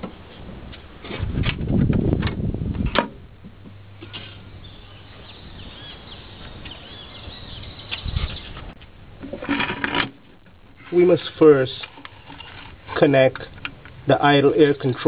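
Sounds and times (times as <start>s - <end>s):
birds chirping faintly: 4.4s - 8.8s.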